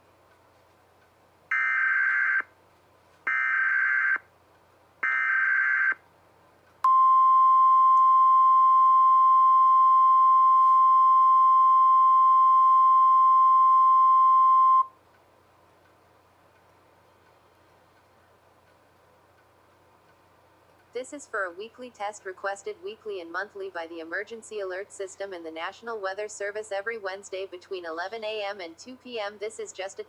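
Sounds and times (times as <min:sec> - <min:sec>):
steady attention tone: 0:06.8 - 0:15.0.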